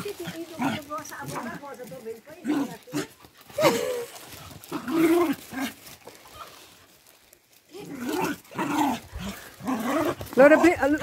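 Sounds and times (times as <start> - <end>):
dogs barking and yipping: 7.8 - 11.0.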